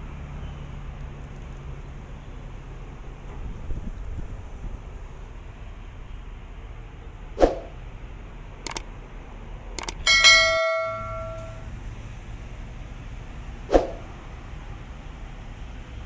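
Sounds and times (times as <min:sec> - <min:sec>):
swoosh: 0:07.4 - 0:07.8, 0:13.7 - 0:14.1
mouse clicks: 0:09.8 - 0:10.0
notification bell chime: 0:10.1 - 0:11.7.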